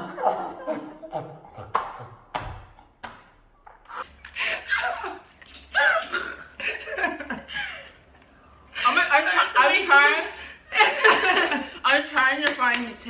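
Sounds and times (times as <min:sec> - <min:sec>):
women laughing: 0:04.2 - 0:11.9.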